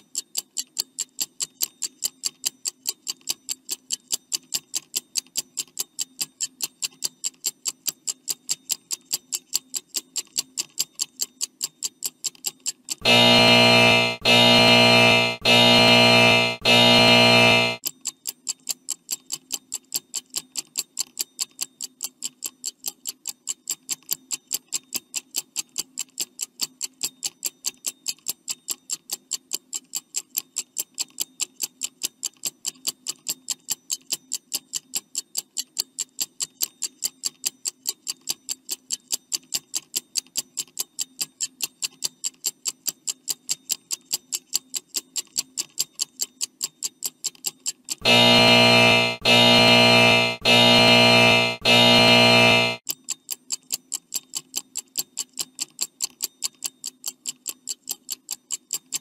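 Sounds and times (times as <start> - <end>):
faint low hum: 13.0 - 17.8.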